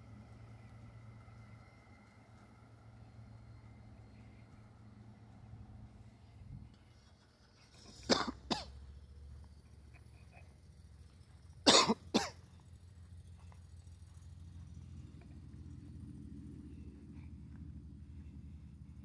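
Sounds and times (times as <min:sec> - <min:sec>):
faint low rumble: 0:00.0 - 0:19.0
person coughing: 0:08.0 - 0:08.7, 0:11.6 - 0:12.4.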